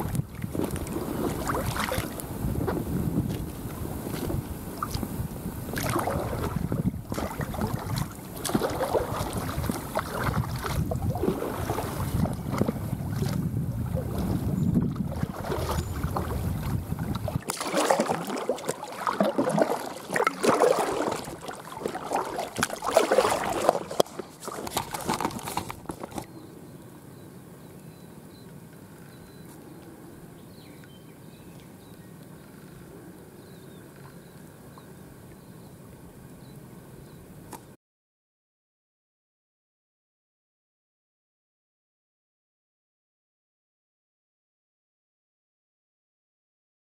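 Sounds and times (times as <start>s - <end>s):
wind gusting on microphone: 0.0s - 18.4s
paddle splashing in water: 0.0s - 26.3s
faint high bird chirps: 26.3s - 35.8s.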